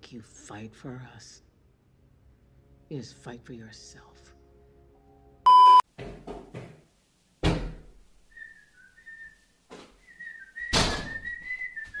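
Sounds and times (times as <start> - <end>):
person whistling a tune: 10.0 - 12.0.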